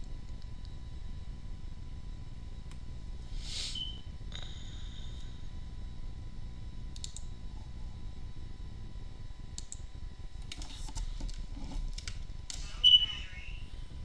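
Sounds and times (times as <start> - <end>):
steady low hum: 0.0 - 14.0
computer clicks: 6.9 - 7.3, 9.6 - 9.8.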